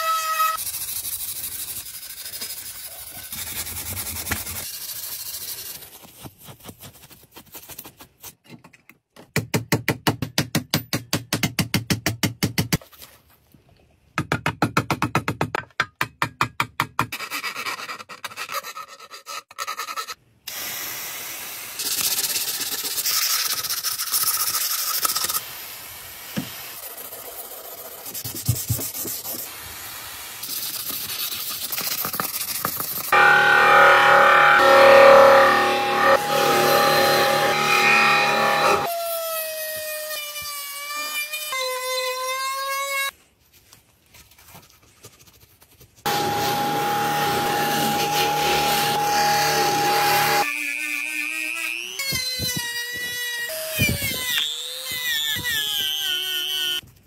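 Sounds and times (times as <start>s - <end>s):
steel wool scrubbing metal: 33.1s - 38.9s, 46.1s - 50.4s.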